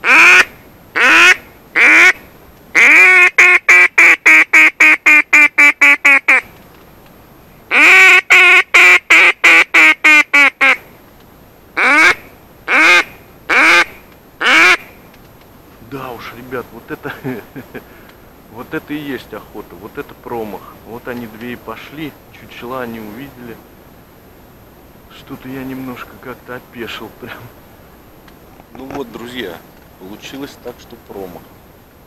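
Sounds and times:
duck call quacks: 0.0s - 2.2s, 2.8s - 6.5s, 7.7s - 10.8s, 11.8s - 14.9s.

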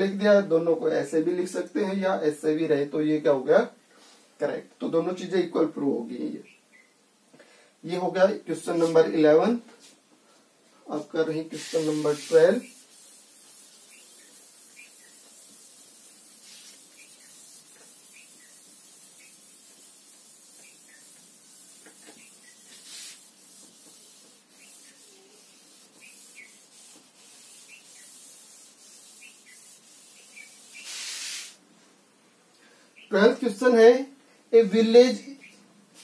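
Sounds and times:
duster rubbing on chalkboard: 11.4s - 31.6s.

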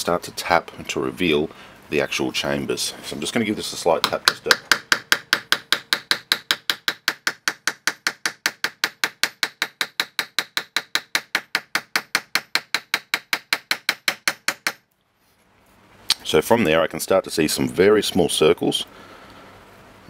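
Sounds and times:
hammer tapping on brass padlock: 4.0s - 14.8s.

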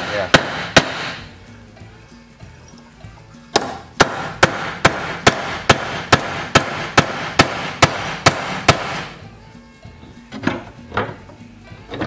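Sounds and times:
hammer striking metal punch: 0.0s - 1.3s, 3.5s - 9.2s.

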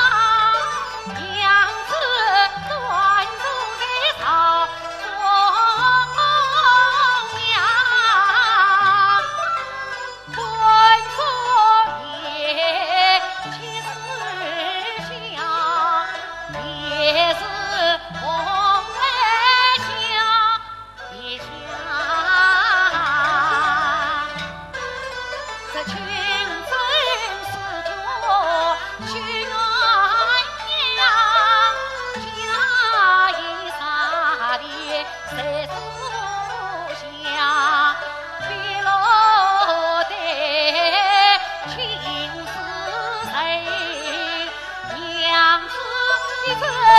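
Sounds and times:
woman singing opera with vibrato: 0.0s - 9.2s, 10.3s - 24.4s, 25.7s - 46.9s
traditional instrumental accompaniment: 0.0s - 46.9s
opera singing with vibrato: 32.4s - 46.9s.

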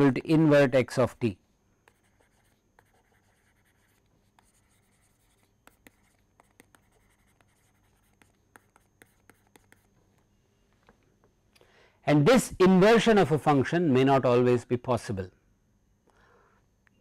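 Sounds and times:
stylus tapping and scratching: 1.8s - 10.9s.

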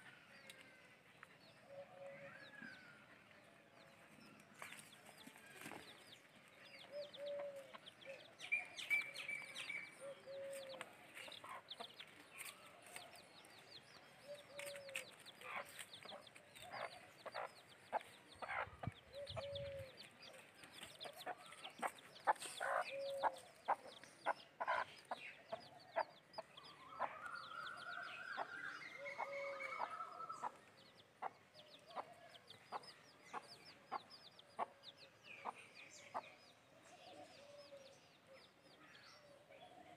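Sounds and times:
chickens clucking: 9.9s - 13.2s, 14.4s - 34.8s.

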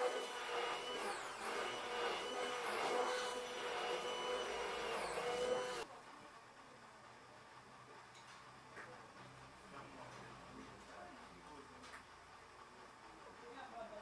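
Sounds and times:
immersion blender motor whine: 0.0s - 5.9s.

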